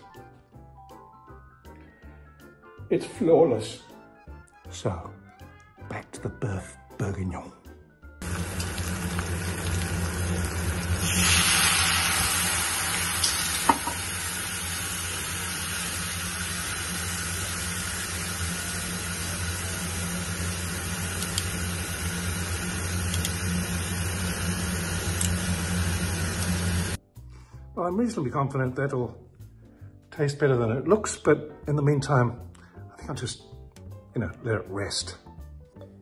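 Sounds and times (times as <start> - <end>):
steak sizzling in pan: 8.2 - 27.0
wine hissing and bubbling: 8.2 - 27.0.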